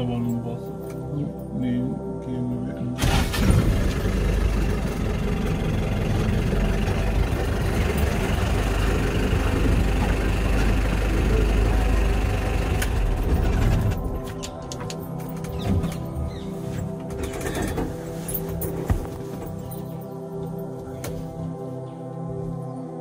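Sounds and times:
vehicle engine idling: 3.0 - 14.2.

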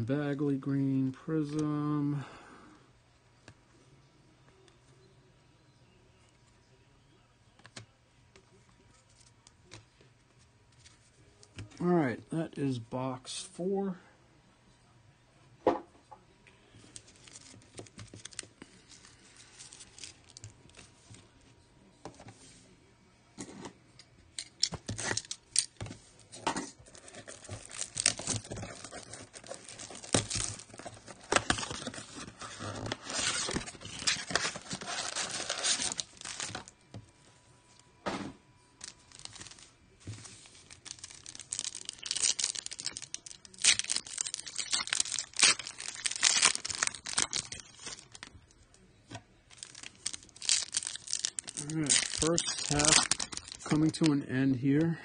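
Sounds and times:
foil wrappers crinkling: 16.9 - 20.9, 26.7 - 36.8, 38.8 - 48.6, 49.5 - 54.2
cardboard tearing: 26.9 - 36.7, 40.7 - 48.3, 49.5 - 53.9.

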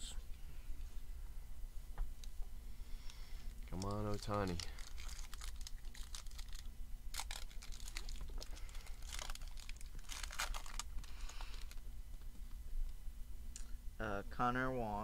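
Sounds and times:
foil wrapper tearing and crinkling: 3.7 - 11.8.

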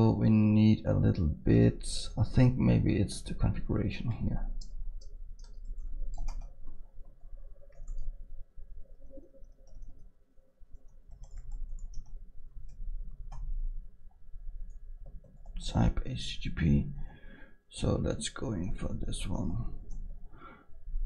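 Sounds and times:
computer keyboard typing: 4.1 - 8.2, 9.0 - 10.1, 10.7 - 13.6, 15.0 - 15.6.

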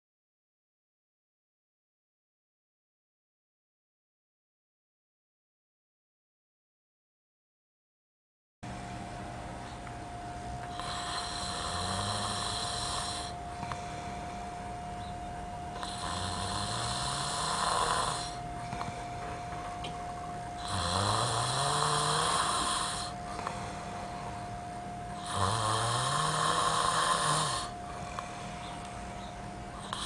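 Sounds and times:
man snoring: 10.7 - 14.6, 15.7 - 24.5, 25.1 - 30.0.

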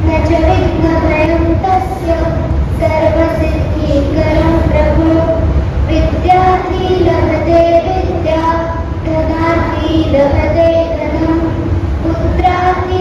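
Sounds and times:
girl singing into a microphone: 0.0 - 13.0
low steady rumble: 0.0 - 13.0.

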